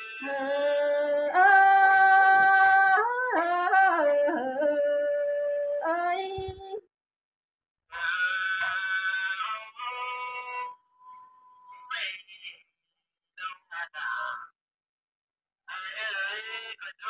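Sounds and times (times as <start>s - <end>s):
woman singing folk song: 0.0s - 6.9s.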